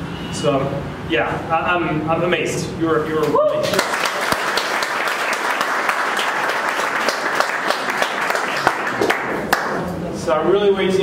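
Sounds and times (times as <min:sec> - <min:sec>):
crowd applauding: 0:03.5 - 0:09.8.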